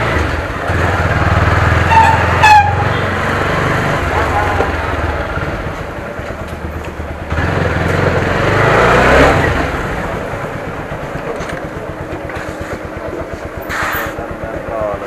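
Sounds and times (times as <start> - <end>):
motorcycle engine idling: 3.8 - 8.6, 9.3 - 15.0.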